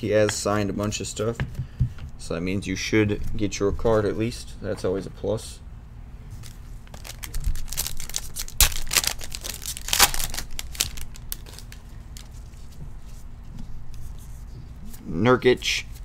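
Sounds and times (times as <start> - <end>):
foil wrapper crinkling and tearing: 6.4 - 12.4
cards rustling: 6.4 - 15.1.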